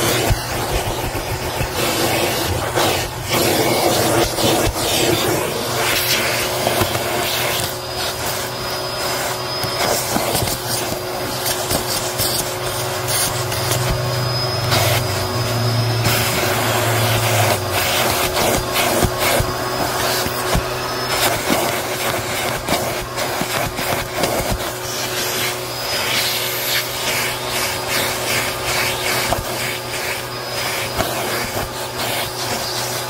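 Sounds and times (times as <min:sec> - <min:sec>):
debris rattling up vacuum hose: 0:00.0 - 0:33.0
vacuum cleaner motor humming: 0:00.0 - 0:33.0
thin high whistle: 0:07.8 - 0:18.3.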